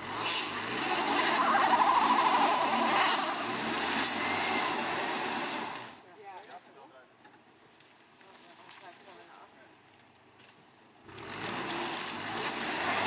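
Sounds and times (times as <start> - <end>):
van engine revving: 0.0 - 6.0, 11.0 - 13.0
wheels spinning in mud: 0.0 - 6.0, 11.0 - 13.0.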